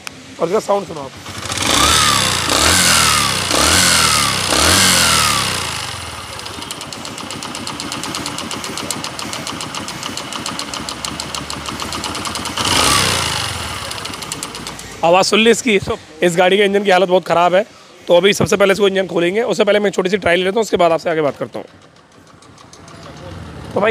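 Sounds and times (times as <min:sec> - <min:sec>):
motorcycle engine revving: 0:00.9 - 0:15.0, 0:21.5 - 0:23.9
engine idling with tapping knock: 0:01.2 - 0:15.0, 0:21.2 - 0:23.9.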